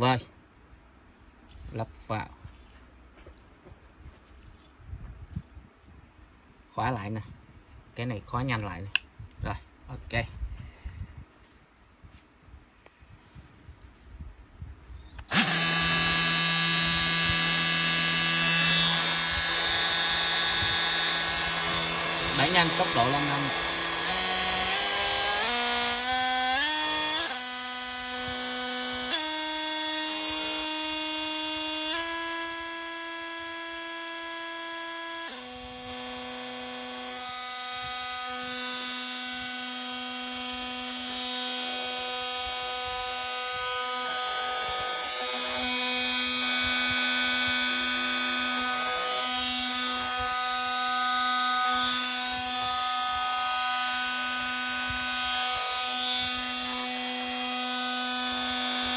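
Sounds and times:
oscillating multi-tool whining: 0:15.2 - 0:58.9.

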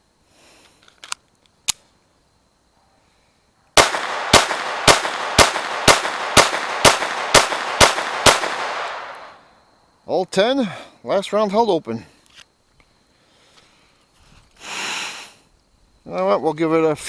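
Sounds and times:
pistol shots echoing: 0:03.8 - 0:09.4.

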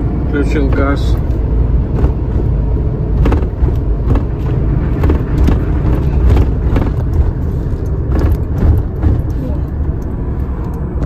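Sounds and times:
engine and road rumble: 0:00.0 - 0:11.0
irregular knocks: 0:01.9 - 0:02.5, 0:03.1 - 0:07.4.

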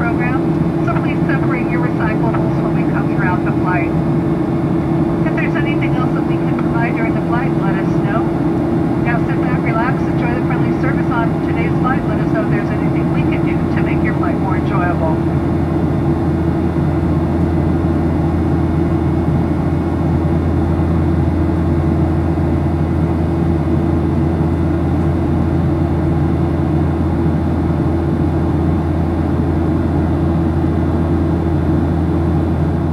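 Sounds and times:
jet engine cabin rush: 0:00.0 - 0:19.8.

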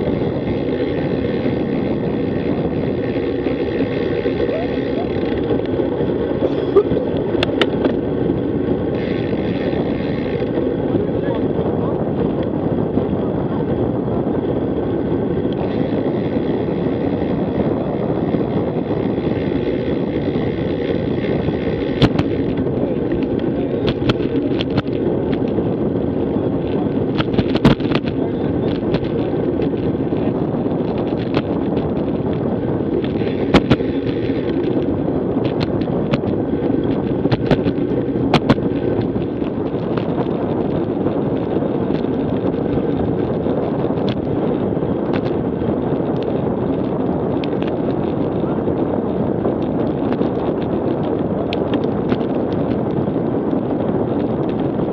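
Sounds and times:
wind buffeting microphone: 0:00.0 - 0:54.9
bike mount knocks and clicks: 0:07.1 - 0:08.0, 0:21.9 - 0:25.5.

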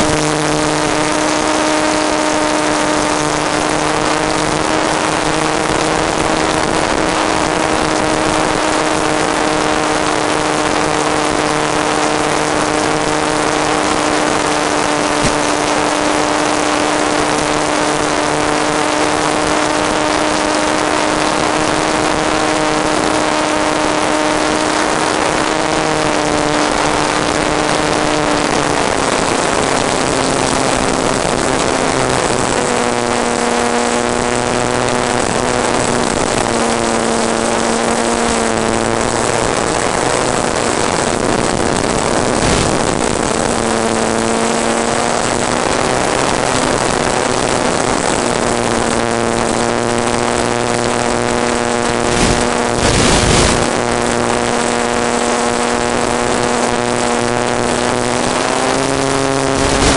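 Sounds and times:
model airplane motor and propeller: 0:00.0 - 0:59.9
wind rushing: 0:35.0 - 0:48.5, 0:50.3 - 0:54.7.

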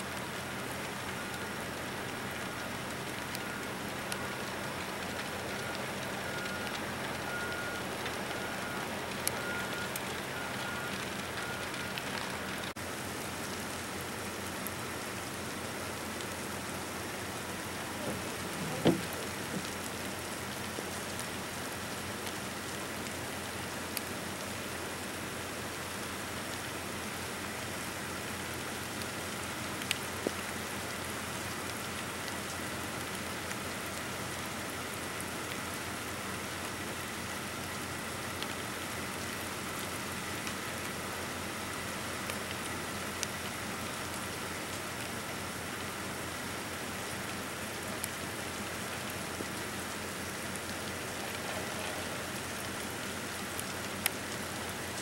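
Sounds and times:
faint ticks: 0:02.1 - 0:12.7, 0:29.0 - 0:30.5.

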